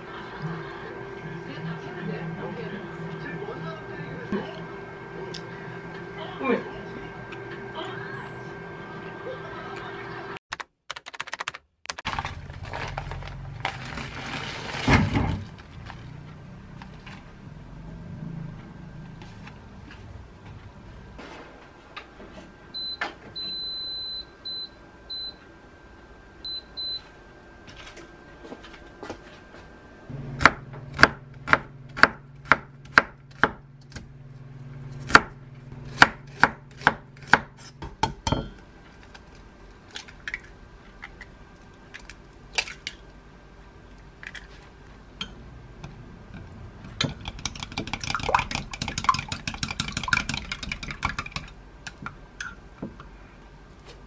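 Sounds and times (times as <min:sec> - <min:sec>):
knife chopping on wooden board: 0:30.4 - 0:34.0, 0:35.1 - 0:38.6
egg beaten in glass mug: 0:47.0 - 0:52.0.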